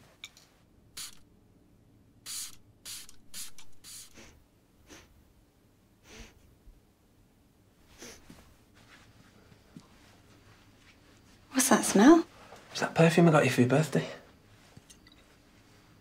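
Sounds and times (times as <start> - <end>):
perfume spray hissing: 1.0 - 1.2, 2.3 - 5.1.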